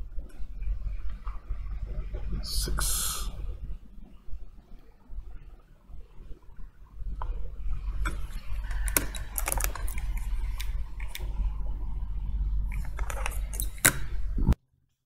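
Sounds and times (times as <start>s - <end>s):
steady low hum: 0.0s - 14.6s
hands handling phone parts: 8.0s - 11.3s, 12.7s - 14.1s.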